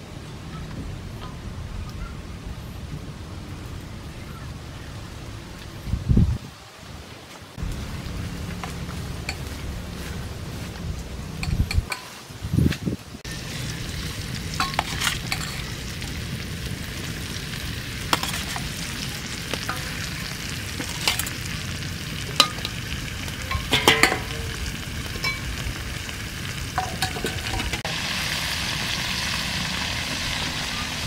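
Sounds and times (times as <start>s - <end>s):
metal utensil scraping wok: 13.3s - 16.4s, 17.6s - 25.7s, 26.5s - 28.1s
fish sizzling in a wok: 13.3s - 31.0s.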